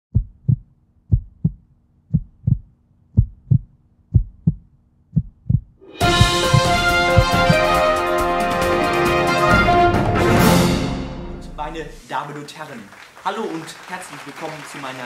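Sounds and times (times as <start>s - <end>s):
heartbeat thumps: 0.1s - 7.8s
music: 5.8s - 11.9s.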